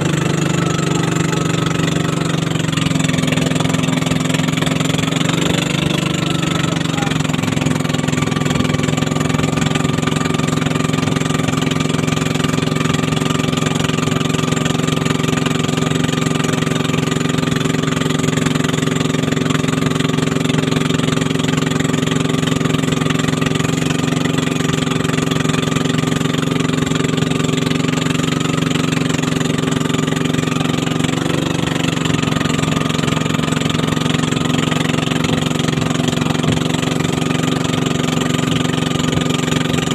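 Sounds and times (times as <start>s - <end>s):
motorboat engine running: 0.0s - 39.9s
water splashing along hull: 0.0s - 39.9s.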